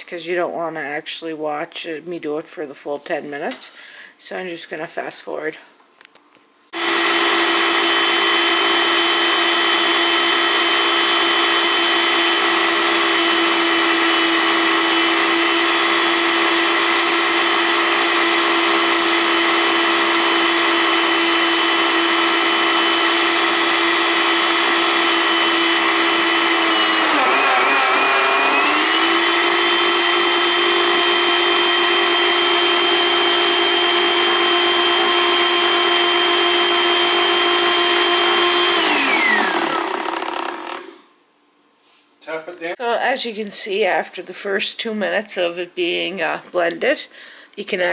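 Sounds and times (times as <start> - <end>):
blender motor whining: 6.8 - 41.1.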